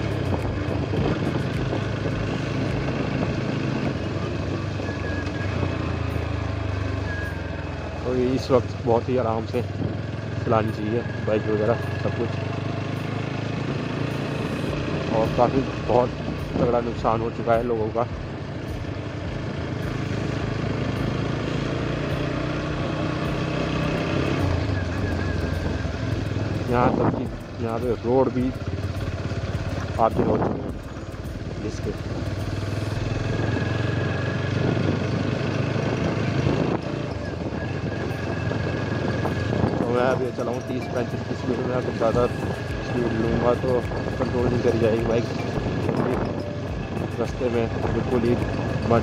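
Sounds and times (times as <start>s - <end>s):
wind noise: 0.0s - 5.4s, 34.5s - 41.2s, 42.1s - 49.0s
motorcycle engine running: 0.0s - 49.0s
tyres on wet road: 0.0s - 49.0s.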